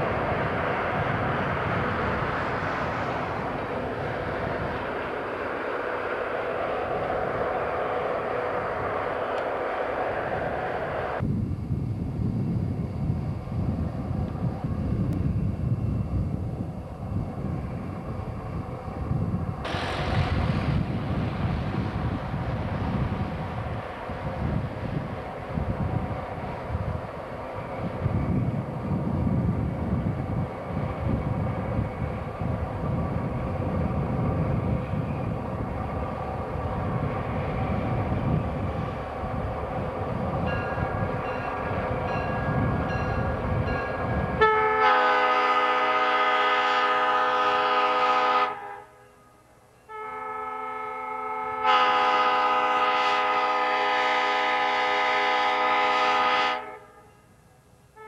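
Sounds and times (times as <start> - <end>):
diesel locomotive rumble: 0.0 - 48.6
train air horn blasts: 44.4 - 57.3.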